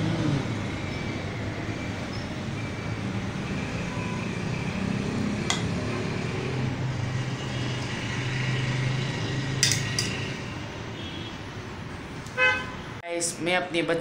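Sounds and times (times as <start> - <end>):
vehicle engine drone: 0.0 - 11.0.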